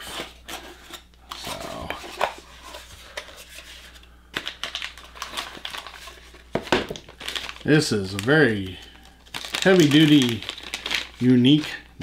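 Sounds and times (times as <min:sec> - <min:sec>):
plastic wrapping crinkling: 0:04.3 - 0:11.9.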